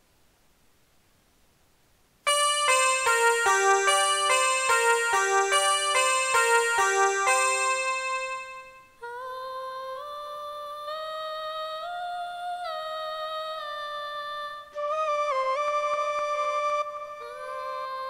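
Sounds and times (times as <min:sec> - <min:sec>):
plucked sitar: 0:02.3 - 0:08.9
flute: 0:02.3 - 0:18.0
female voice singing wordless notes: 0:08.9 - 0:15.0, 0:17.1 - 0:18.0.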